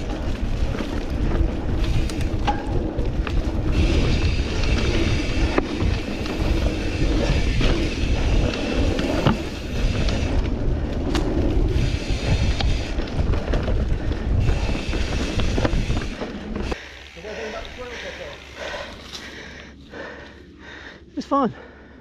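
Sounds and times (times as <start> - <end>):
wind buffeting microphone: 0.0 - 16.8
bike knocks and rattles: 0.0 - 16.9
tyres rolling over dirt: 0.0 - 19.4.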